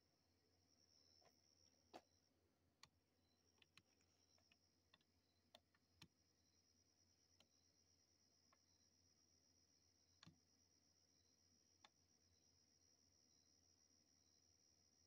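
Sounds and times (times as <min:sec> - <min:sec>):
faint high-pitched whine: 0:00.0 - 0:15.0
faint scattered clicks: 0:02.8 - 0:06.1.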